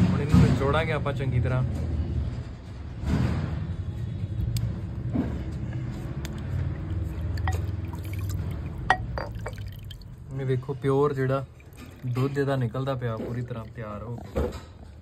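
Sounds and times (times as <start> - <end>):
liquid dripping into bowl: 5.7 - 15.0
small splashes: 5.8 - 15.0.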